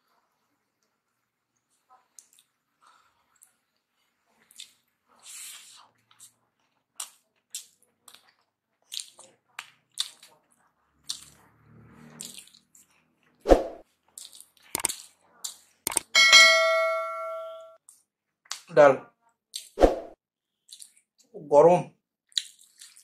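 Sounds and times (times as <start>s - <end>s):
wet chewing and lip smacks: 2.1s - 3.6s, 4.4s - 11.4s, 12.1s - 13.4s, 14.1s - 16.0s, 20.6s - 21.2s, 22.2s - 23.0s
ceramic bowl clinking on plate: 16.1s - 17.7s.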